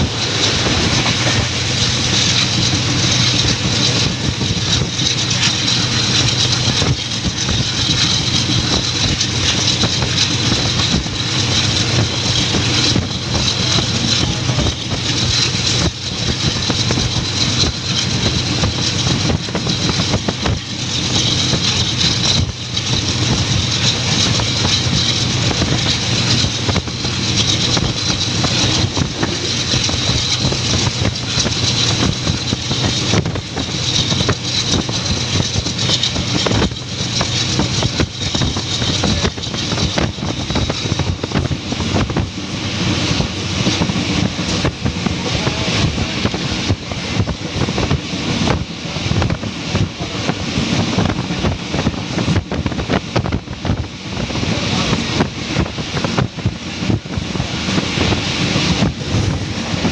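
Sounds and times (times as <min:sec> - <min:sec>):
train wheels rumbling on track: 0:00.0 - 0:59.9.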